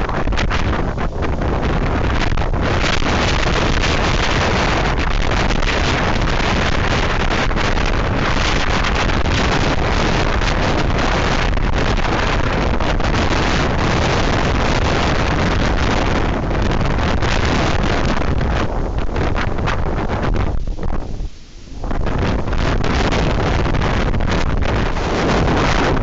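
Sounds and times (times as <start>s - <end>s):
wind blasting across microphone: 0.0s - 26.0s.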